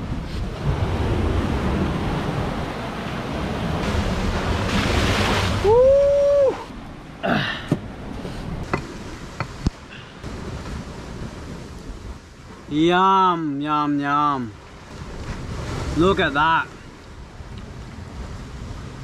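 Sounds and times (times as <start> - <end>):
wind on microphone: 0.0 - 7.0
surf washing on beach: 0.0 - 19.0.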